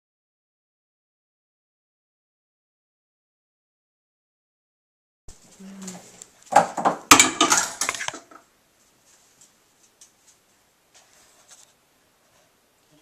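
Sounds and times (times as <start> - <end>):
clatter of hard knocks: 6.5 - 8.4.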